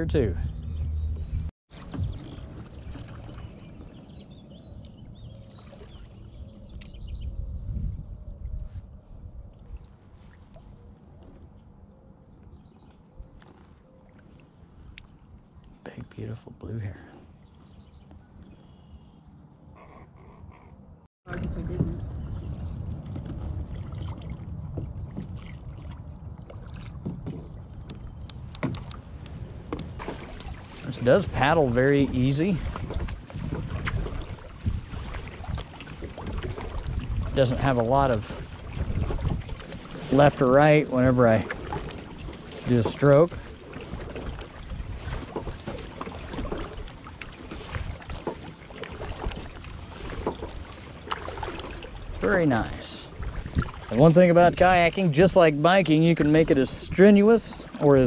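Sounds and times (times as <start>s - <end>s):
water lapping at hull: 0.0s - 58.0s
kayak paddles splashing: 1.0s - 7.7s, 21.3s - 58.0s.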